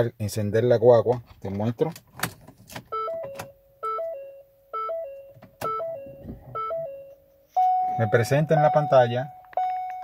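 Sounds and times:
multi-note warning chime: 3.9s - 10.0s.

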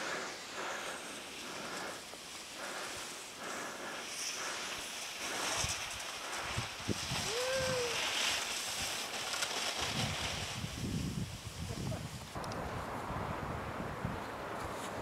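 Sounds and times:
snowboard scraping over snow: 0.0s - 15.0s
wind on microphone: 5.3s - 9.0s, 9.8s - 15.0s.

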